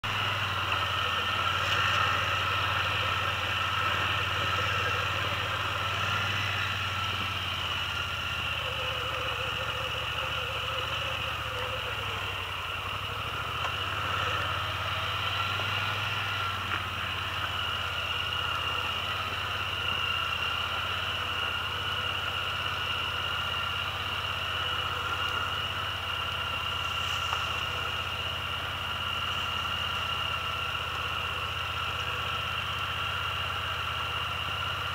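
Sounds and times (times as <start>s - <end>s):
engine whine: 0.0s - 34.9s
quad engine droning: 0.0s - 34.9s.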